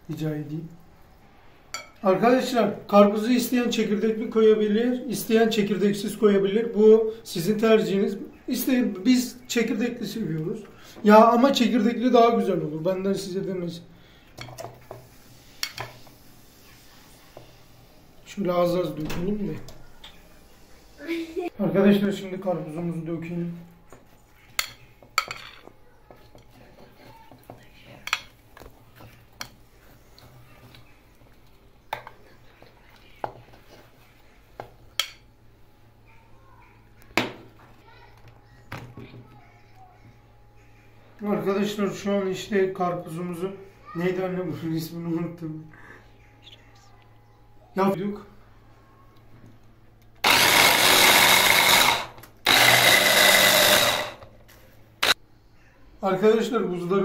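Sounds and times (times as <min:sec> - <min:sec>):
hand blender motor whine: 0:50.2 - 0:54.2.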